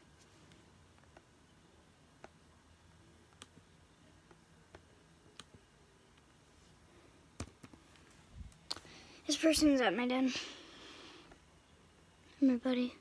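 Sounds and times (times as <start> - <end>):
faint room hum: 0.0 - 13.0
computer mouse clicks: 3.3 - 3.6.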